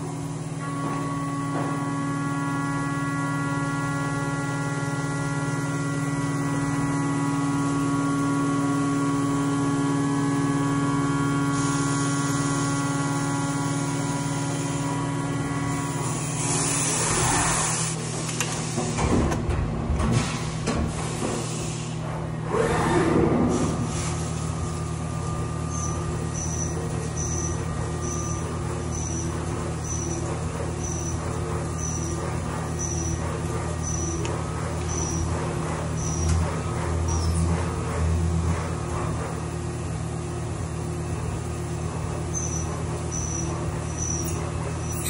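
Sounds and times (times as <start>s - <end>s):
milling machine spindle whine: 0.0s - 18.6s, 23.4s - 45.0s
metal cutting and coolant spray: 11.5s - 14.9s, 15.7s - 18.8s.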